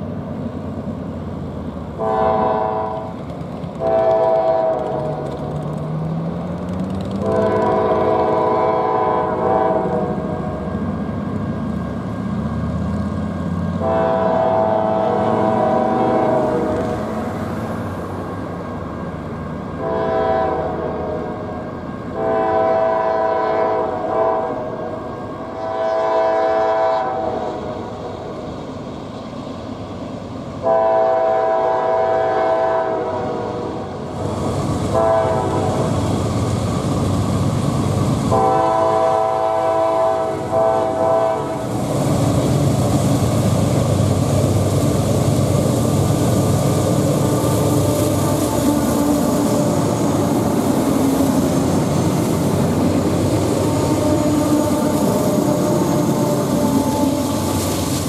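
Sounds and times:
train wheels rolling: 0.0s - 19.9s, 33.8s - 58.0s
locomotive engine rumble: 0.0s - 58.0s
train horn blasts: 2.0s - 5.3s, 7.1s - 10.7s, 13.8s - 17.3s, 19.7s - 21.5s, 22.1s - 27.9s, 30.6s - 34.0s, 34.9s - 36.1s, 38.2s - 41.8s, 47.1s - 51.7s, 52.6s - 57.7s.

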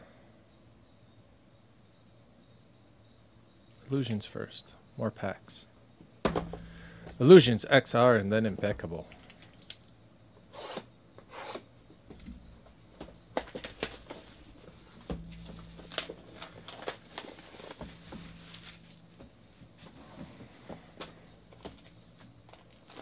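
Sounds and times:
cardboard boxes rustling and scraping: 13.4s - 22.0s.

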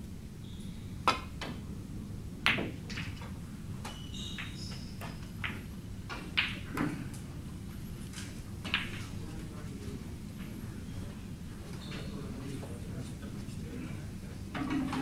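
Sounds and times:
cue striking snooker ball: 2.5s - 3.2s
snooker balls clacking: 2.5s - 7.1s, 8.6s - 9.2s.

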